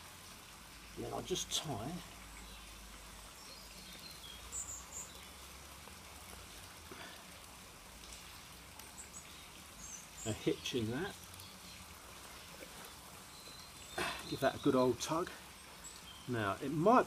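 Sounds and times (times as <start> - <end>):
outdoor background hiss: 0.0 - 17.0
bird chirps: 13.3 - 14.9.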